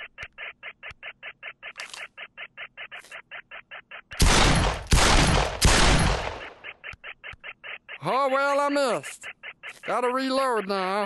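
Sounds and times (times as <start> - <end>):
pistol gunfire: 4.2 - 6.6.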